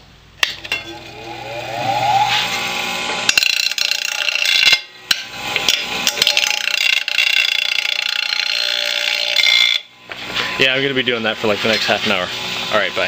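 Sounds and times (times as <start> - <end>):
metal bar grinding on wheel: 0.4 - 9.9
bench grinder motor whine: 0.6 - 10.6.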